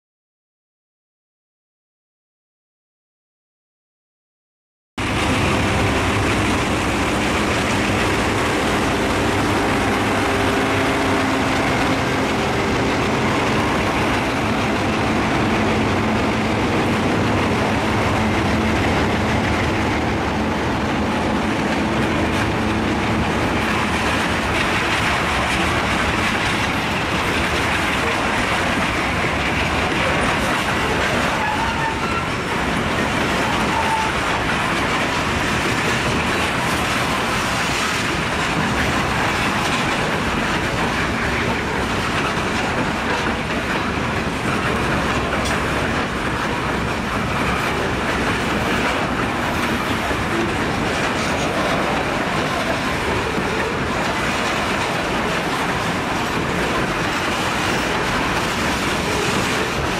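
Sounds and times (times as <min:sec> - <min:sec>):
diesel engine drone: 0:05.0 - 0:24.6
train wheels clattering on rails: 0:05.0 - 0:59.9.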